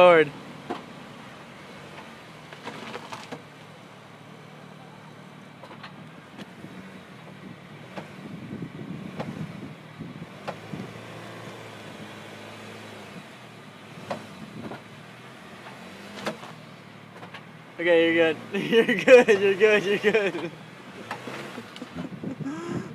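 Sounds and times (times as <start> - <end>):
car engine running: 0.0 - 22.9.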